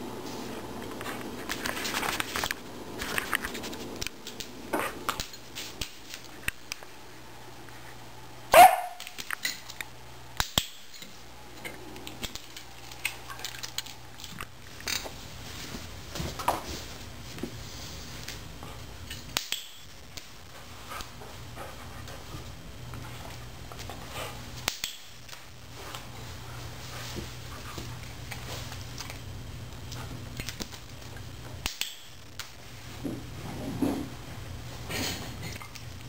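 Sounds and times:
dog barking: 8.5s - 9.1s.

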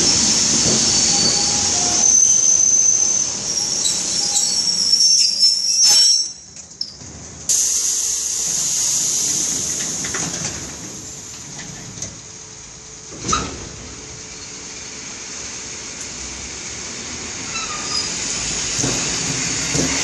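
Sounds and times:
train brakes squealing: 0.0s - 6.9s, 17.4s - 18.8s
compressed air hiss: 7.5s - 11.2s.

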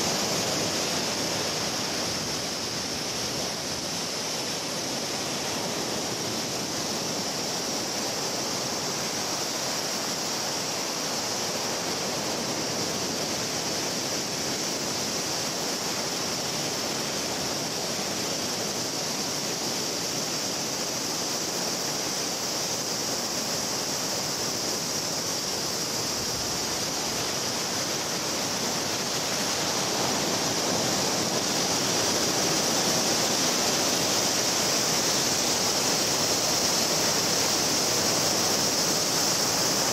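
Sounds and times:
ocean surf breaking: 25.6s - 39.9s.

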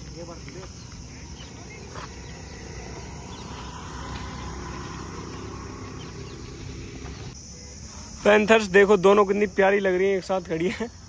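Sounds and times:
low outdoor rumble: 1.0s - 7.4s.

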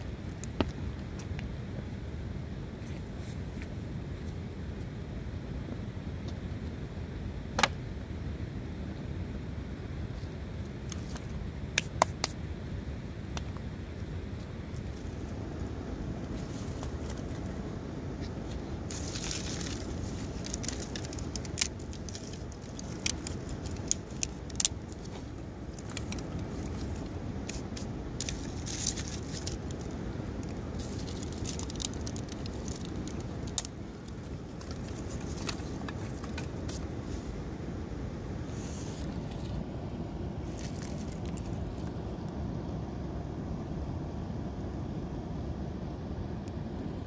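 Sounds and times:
dry twigs snapping and crackling: 18.9s - 36.9s, 40.5s - 41.9s.

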